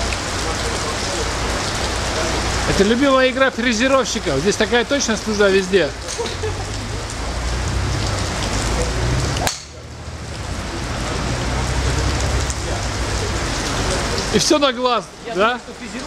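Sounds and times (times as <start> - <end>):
rain hissing: 0.0 - 16.0
golf driver striking ball: 9.4 - 9.9.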